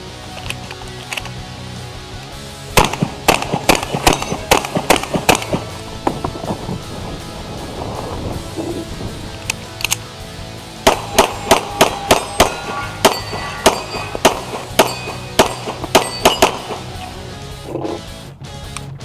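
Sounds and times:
pistol shots: 0:02.8 - 0:05.8, 0:10.8 - 0:17.1
steel targets clanging: 0:03.4 - 0:05.6, 0:10.9 - 0:17.2.

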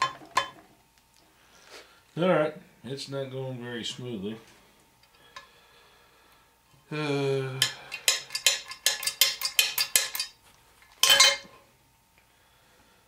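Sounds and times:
metal-on-metal tapping: 0:07.6 - 0:10.4
metal clank: 0:11.0 - 0:11.5.

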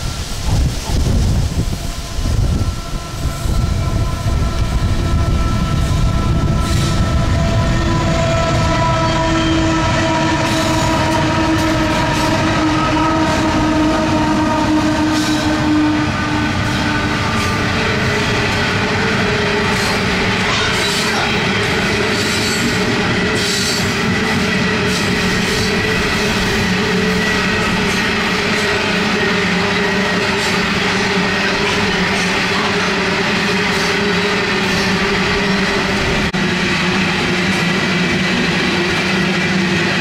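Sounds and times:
wind buffeting microphone: 0:00.0 - 0:20.5
diesel locomotives rumbling: 0:00.0 - 0:40.0.

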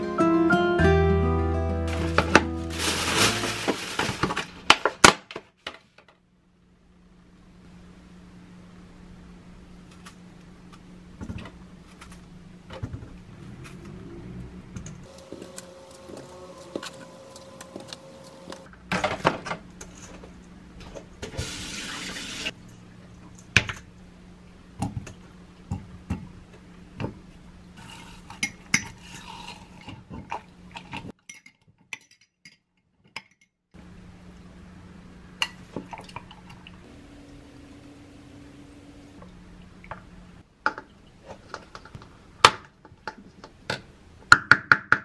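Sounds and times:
steady low hum: 0:06.4 - 0:18.8, 0:33.8 - 0:40.5
running water: 0:21.4 - 0:22.5.

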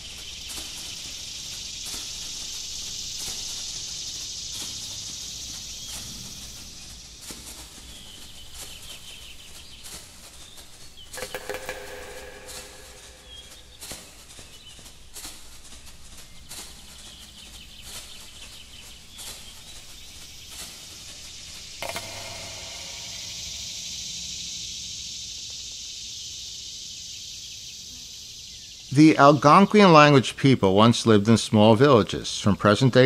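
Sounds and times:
short bird calls and clicks: 0:00.0 - 0:29.0
steady high hiss: 0:00.0 - 0:33.0
loud pitched bird call: 0:08.0 - 0:14.8, 0:21.8 - 0:25.1.

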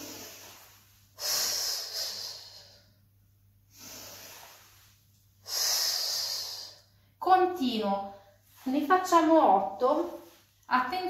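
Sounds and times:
woman breathing: 0:00.0 - 0:07.2.

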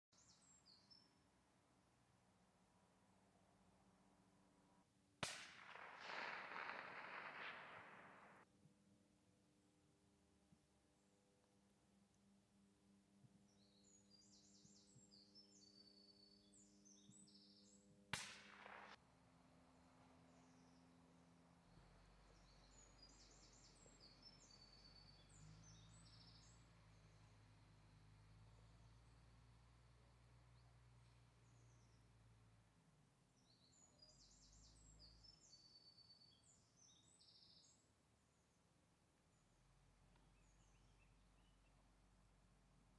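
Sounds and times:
songbird chirping: 0:00.0 - 0:02.5, 0:10.5 - 0:18.9, 0:19.5 - 0:42.9
rifle shot with echo: 0:05.2 - 0:08.4, 0:18.2 - 0:19.0.

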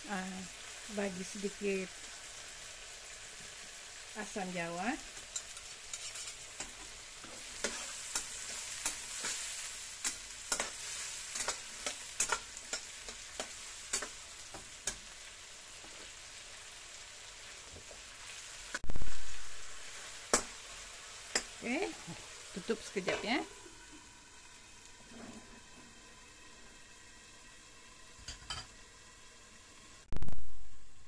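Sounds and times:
vegetables sizzling in a wok: 0:00.0 - 0:31.0
metal spatula scraping a wok: 0:05.1 - 0:15.0.

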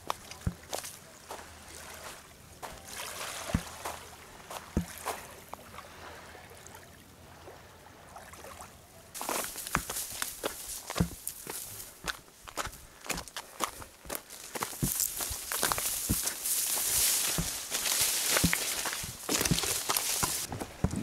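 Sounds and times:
small waves lapping on shore: 0:00.0 - 0:21.0
scuffing noise: 0:09.2 - 0:21.0.

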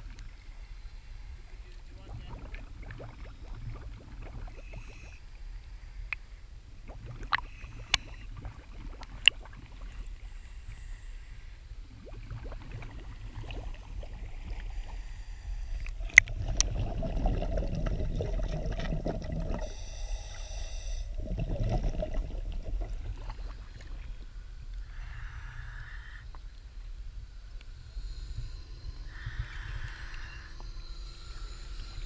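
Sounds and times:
muffled underwater rumbling and gurgling: 0:00.0 - 0:32.0
water lapping and splashing: 0:01.2 - 0:11.0, 0:11.8 - 0:25.2.

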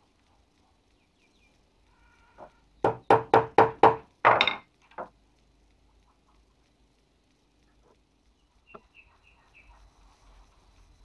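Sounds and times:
hen clucking: 0:08.6 - 0:09.9.

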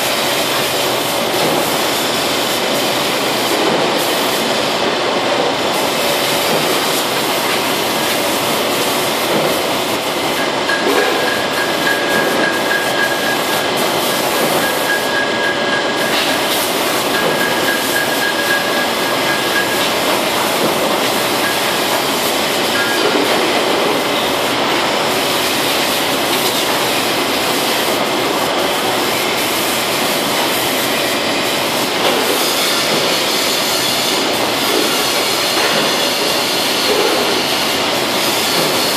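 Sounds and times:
spray booth extraction: 0:00.0 - 0:38.9
paint spray gun hissing: 0:00.1 - 0:04.6, 0:13.2 - 0:14.8, 0:16.0 - 0:20.1.

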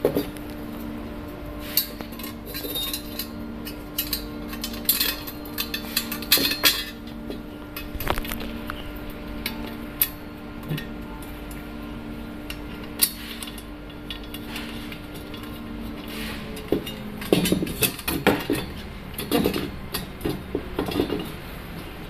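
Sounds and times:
low steady hum: 0:00.0 - 0:22.0
metal rods clinking together: 0:01.6 - 0:07.2, 0:12.5 - 0:21.4.

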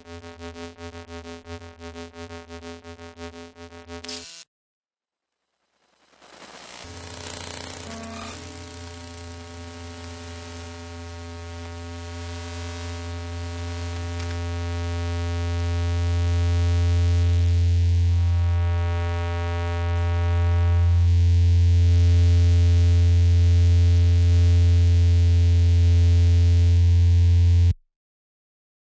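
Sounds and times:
low electrical buzz drone: 0:00.0 - 0:04.4, 0:06.7 - 0:27.8.

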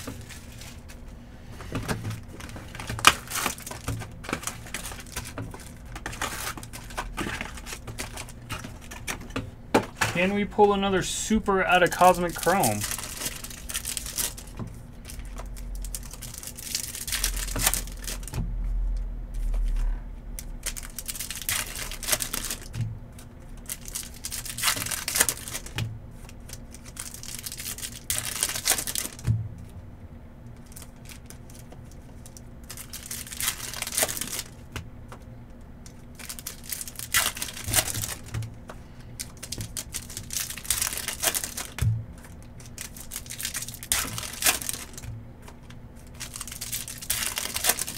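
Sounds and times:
wrappers torn and crinkled: 0:02.2 - 0:09.2, 0:10.2 - 0:18.4, 0:19.4 - 0:29.2, 0:30.5 - 0:35.2, 0:35.8 - 0:38.5, 0:39.2 - 0:47.9.

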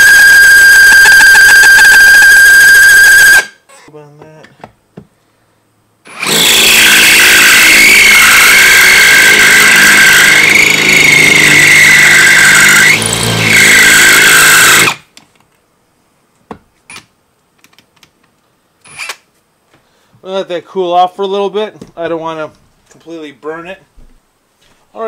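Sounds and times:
cordless drill whining into steel: 0:00.0 - 0:03.6, 0:06.1 - 0:15.0, 0:18.8 - 0:19.2.

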